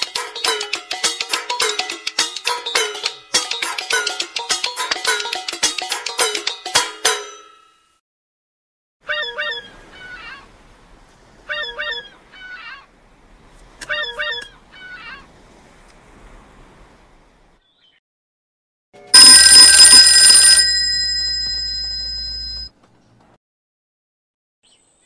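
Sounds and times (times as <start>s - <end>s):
chirping phone ringtone: 19.2s - 22.7s
telephone bell ringing: 19.2s - 22.7s.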